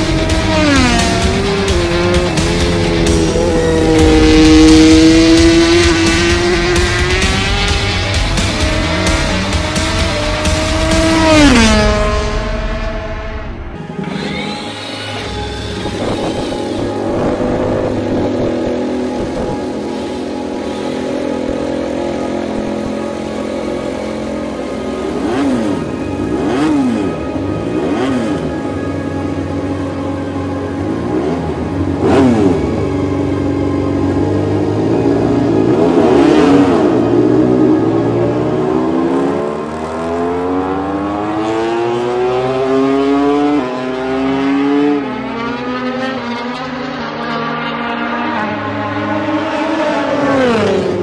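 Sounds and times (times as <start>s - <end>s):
motorcycle engine accelerating: 0.0s - 51.0s.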